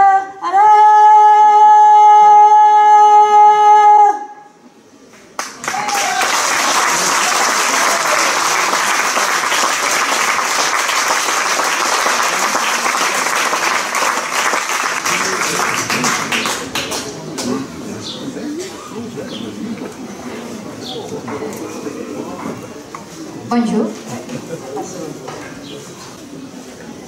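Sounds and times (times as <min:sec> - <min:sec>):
audience applauding: 0:05.4 - 0:17.6.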